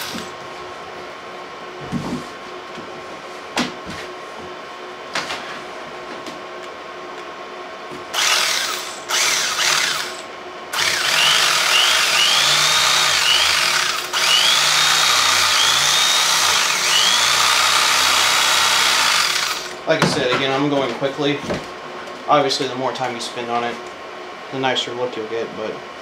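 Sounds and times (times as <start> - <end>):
electric carving knife cutting foam: 0.0 - 0.3, 8.1 - 19.8.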